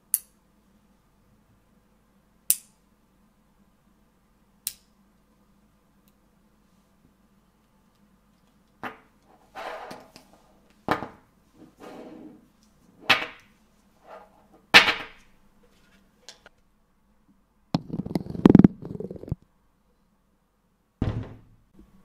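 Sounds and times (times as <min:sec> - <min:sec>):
magnetic balls clicking together: 0:17.8 - 0:19.4.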